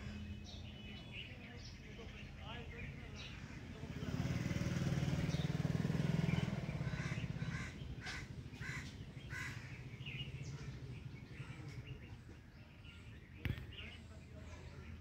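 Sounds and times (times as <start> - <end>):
vehicle engine rumble: 0.0 - 15.0
bird calling: 4.8 - 15.0.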